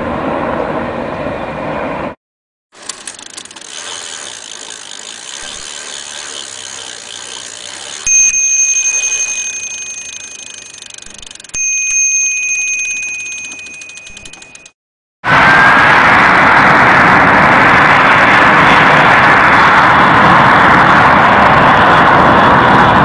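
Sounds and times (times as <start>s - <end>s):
bicycle freewheel ticking: 2.8s - 14.8s
bicycle bell ringing: 2.9s - 14.8s.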